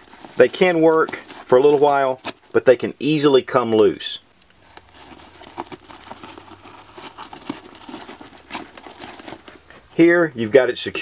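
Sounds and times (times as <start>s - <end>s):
light rustle of webbing: 4.5s - 9.9s.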